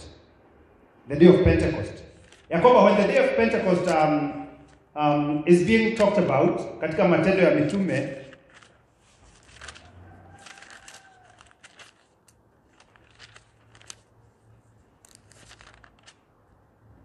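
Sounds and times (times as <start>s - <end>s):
paper pages rustling and flicking: 2.2s - 2.5s, 7.6s - 16.3s.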